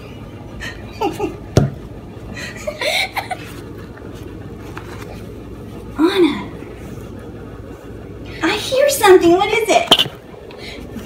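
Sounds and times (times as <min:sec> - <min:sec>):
person chuckling: 0:00.6 - 0:01.5, 0:02.3 - 0:03.7.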